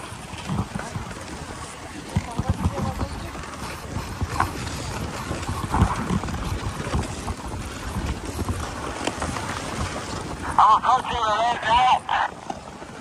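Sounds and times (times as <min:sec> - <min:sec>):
wind on microphone: 0:00.0 - 0:13.0.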